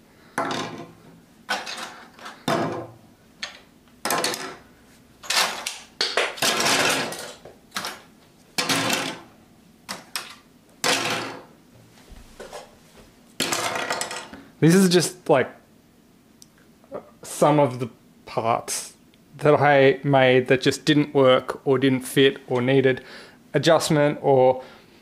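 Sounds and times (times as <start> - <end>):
plastic parts clattering on wood: 1.5 - 4.6, 5.2 - 9.2, 13.4 - 14.3.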